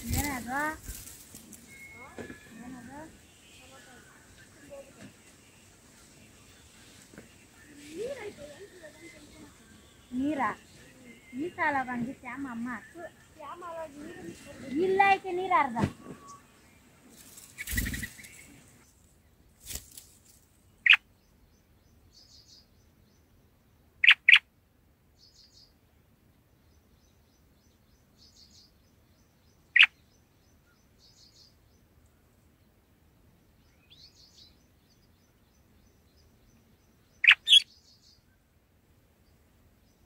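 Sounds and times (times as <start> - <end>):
faint high chirping: 0.0 - 18.9, 33.2 - 38.4
bird chirps: 16.0 - 18.6, 24.0 - 24.4, 26.6 - 31.9, 33.2 - 38.4
brief rustle: 19.6 - 20.5.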